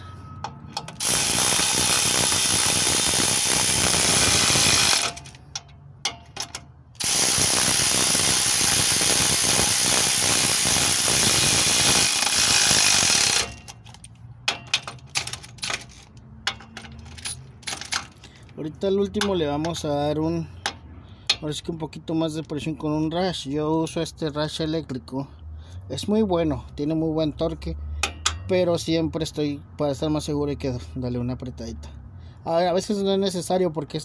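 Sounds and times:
electric ratchet wrench running: 0:00.9 - 0:05.4, 0:07.0 - 0:14.1.

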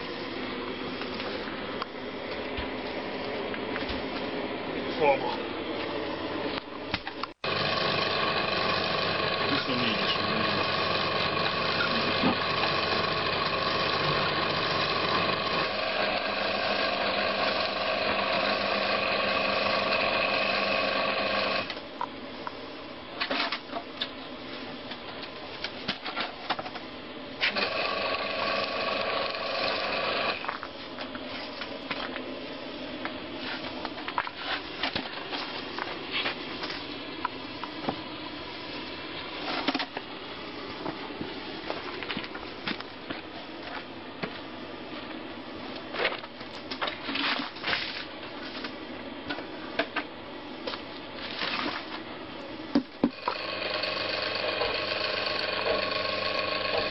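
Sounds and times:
electric winch whining: 0:07.4 - 0:21.7, 0:27.5 - 0:30.5, 0:53.1 - 0:56.9.

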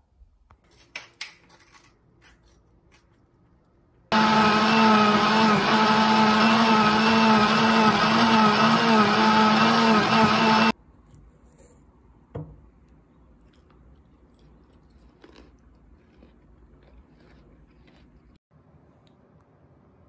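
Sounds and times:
blender motor running: 0:04.1 - 0:10.8.

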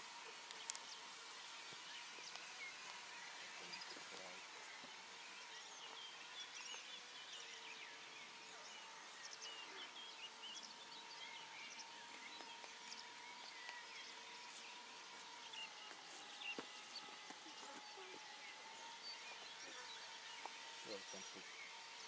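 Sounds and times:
birds chirping: 0:00.0 - 0:22.0
model airplane engine drone: 0:00.0 - 0:22.0.

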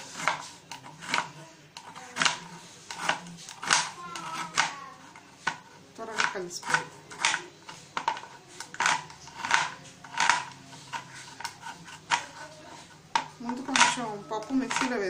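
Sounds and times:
knife chopping on cutting board: 0:00.1 - 0:04.8.

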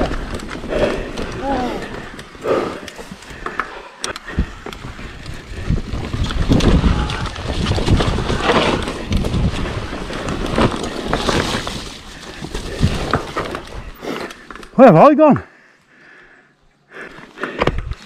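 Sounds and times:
bike tyres rolling on dirt: 0:00.0 - 0:15.1
wind buffeting microphone: 0:04.2 - 0:11.8.

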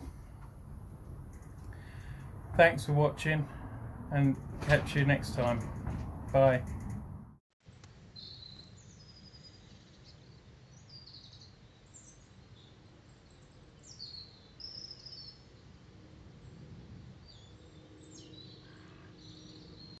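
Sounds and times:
small birds chirping: 0:00.0 - 0:04.5, 0:08.2 - 0:15.7, 0:17.2 - 0:20.0
low background rumble: 0:00.0 - 0:07.4.

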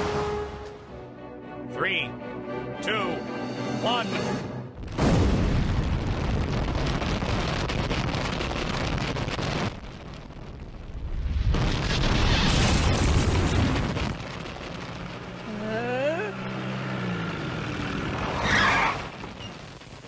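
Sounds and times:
explosion rumbling blast: 0:04.8 - 0:15.7.

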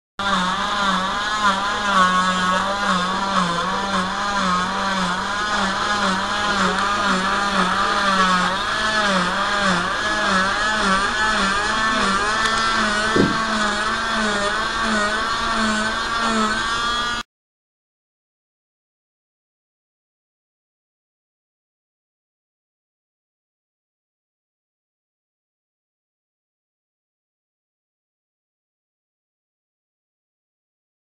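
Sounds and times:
cast saw motor hum: 0:00.2 - 0:17.2.

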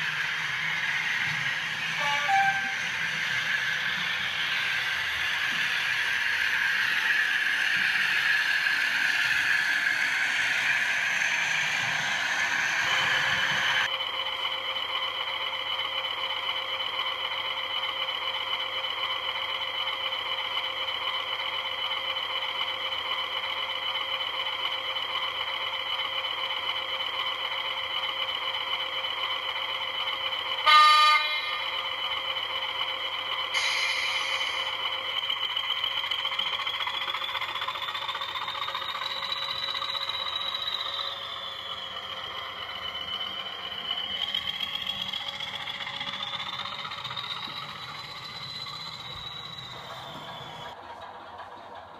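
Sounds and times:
model train running on track: 0:00.0 - 0:51.9
short horn blast: 0:02.0 - 0:02.8.

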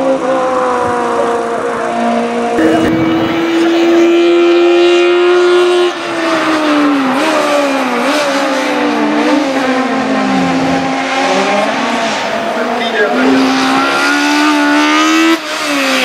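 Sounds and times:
car engine screaming at high revs: 0:00.0 - 0:16.0.

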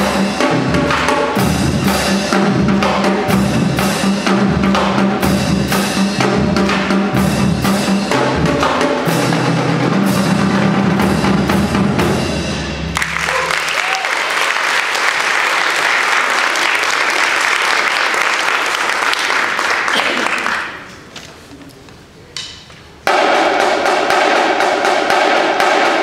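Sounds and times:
marching drumline playing: 0:00.0 - 0:14.0, 0:23.0 - 0:26.0
audience applause: 0:13.0 - 0:20.9.

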